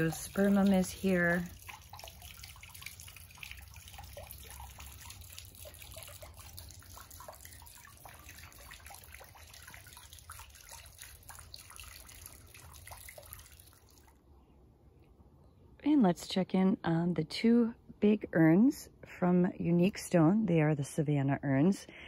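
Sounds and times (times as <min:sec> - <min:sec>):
water trickling and dripping: 0:00.0 - 0:14.3.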